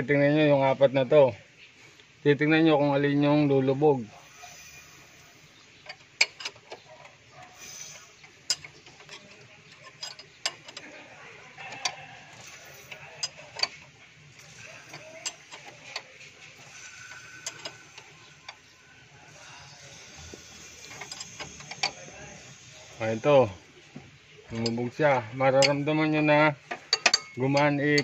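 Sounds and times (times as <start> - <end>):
metallic engine valve clicks: 5.8 - 6.8, 7.4 - 11.0, 11.8 - 23.6, 24.5 - 28.0.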